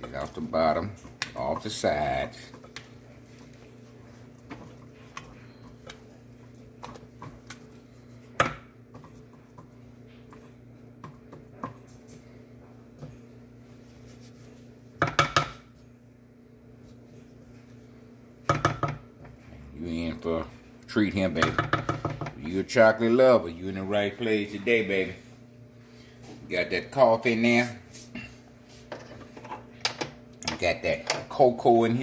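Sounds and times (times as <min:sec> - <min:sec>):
faint steady hum: 0:00.0 - 0:32.0.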